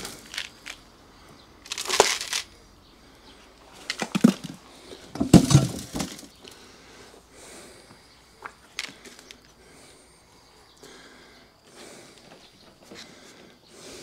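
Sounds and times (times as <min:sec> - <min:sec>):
gritty soil pouring into pots: 0:00.0 - 0:00.8, 0:01.6 - 0:02.5, 0:03.7 - 0:06.4.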